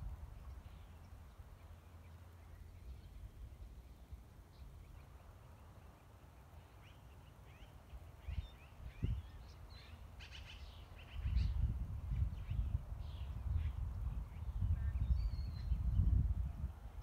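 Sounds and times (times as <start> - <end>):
wind rumble on microphone: 0.0 - 1.6, 8.2 - 17.0
small birds chirping: 0.3 - 17.0.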